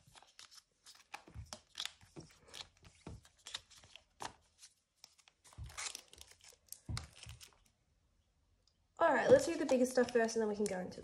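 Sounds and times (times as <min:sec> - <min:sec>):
cards clicking and sliding: 0:00.1 - 0:07.6.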